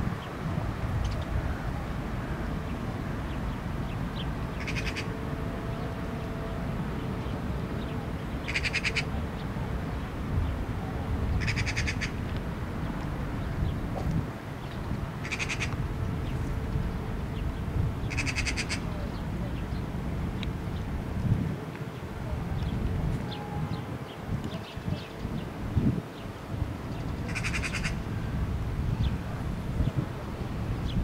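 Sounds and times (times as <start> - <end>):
frog rattling croak: 15.2 - 15.7, 18.1 - 18.8, 27.3 - 28.0.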